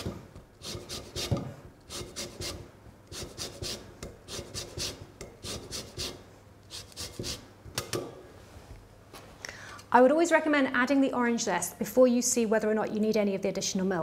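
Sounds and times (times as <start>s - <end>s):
peel scraping on a zester: 0.6s - 7.4s.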